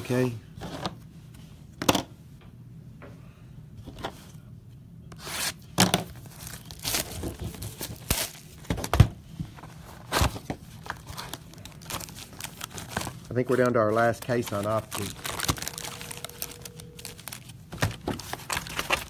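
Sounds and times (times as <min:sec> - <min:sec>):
wrapping tearing and rustling: 0:05.2 - 0:08.6, 0:09.7 - 0:19.0.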